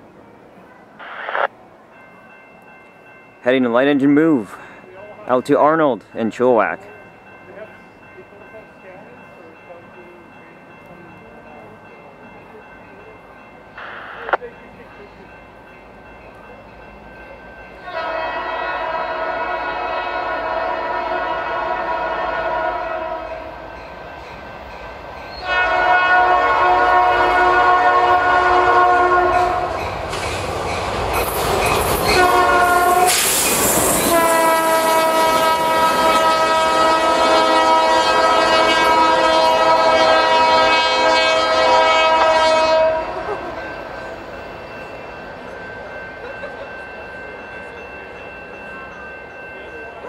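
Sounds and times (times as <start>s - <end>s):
locomotive air horn: 17.8s - 23.5s, 25.4s - 29.7s, 32.0s - 33.4s, 34.0s - 43.3s
locomotive engine and wheel noise: 29.2s - 37.2s.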